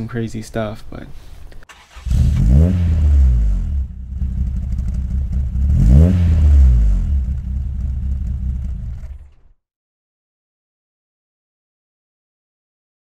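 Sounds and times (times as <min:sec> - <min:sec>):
car engine revving: 0:01.7 - 0:09.6.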